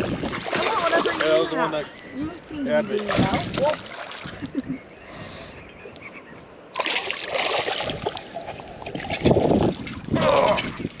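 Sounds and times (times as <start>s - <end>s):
fish splashing at water surface: 6.8s - 10.0s.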